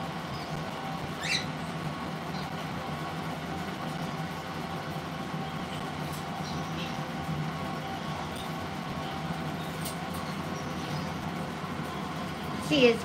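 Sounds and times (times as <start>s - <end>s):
steady low hum: 0.0s - 13.0s
parrot squeak: 1.2s - 1.5s.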